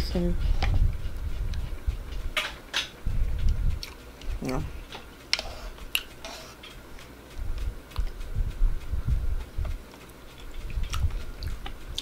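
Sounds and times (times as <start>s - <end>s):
dull low thumps: 0.0s - 2.4s, 3.0s - 4.8s, 7.4s - 9.8s, 10.6s - 12.0s.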